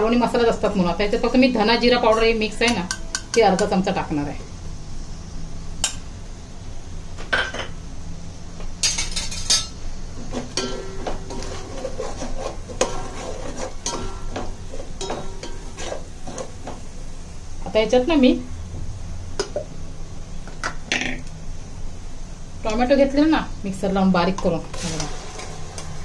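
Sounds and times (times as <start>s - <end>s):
spoon scraping in a metal pan: 8.8s - 16.8s.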